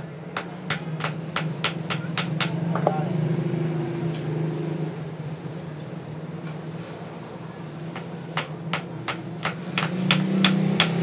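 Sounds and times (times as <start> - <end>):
hammer tapping on metal: 0.0 - 3.0, 7.9 - 11.0.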